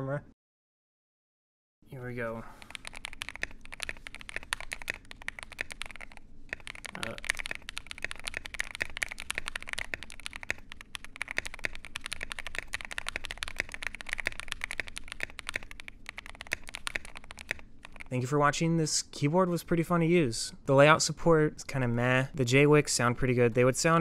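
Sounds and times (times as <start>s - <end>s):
typing on mechanical keyboard: 2.6s - 18.1s.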